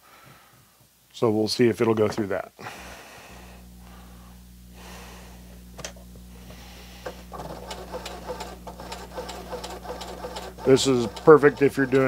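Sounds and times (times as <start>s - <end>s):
sewing machine motor hum: 6.6s - 12.0s
sewing needle strokes ticking: 7.3s - 12.0s.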